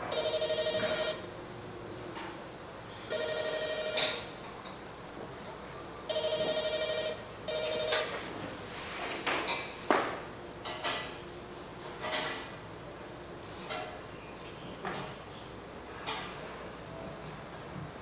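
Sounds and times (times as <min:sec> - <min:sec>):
telephone ringing with electronic trill: 0:00.1 - 0:01.3, 0:03.1 - 0:04.3, 0:06.1 - 0:08.3.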